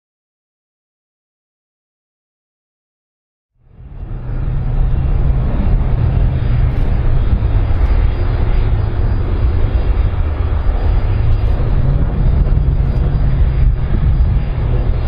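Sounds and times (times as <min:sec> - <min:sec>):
jet engine rumble: 0:03.6 - 0:15.0.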